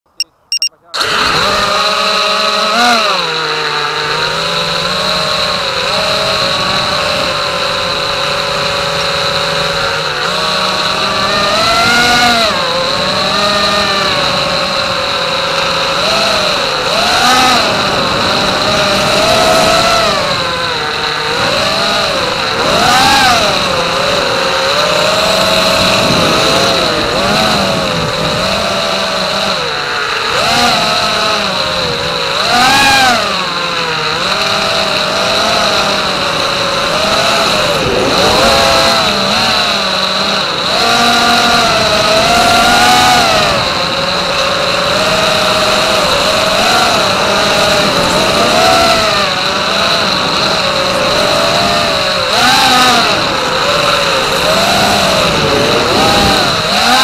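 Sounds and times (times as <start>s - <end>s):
steady high tone: 0.1s - 0.9s
drone motors whining: 0.1s - 57.0s.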